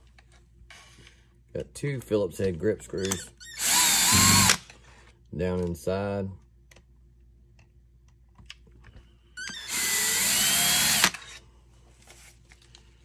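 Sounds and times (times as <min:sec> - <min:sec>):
power drill whining: 0:03.0 - 0:04.7, 0:09.4 - 0:11.4.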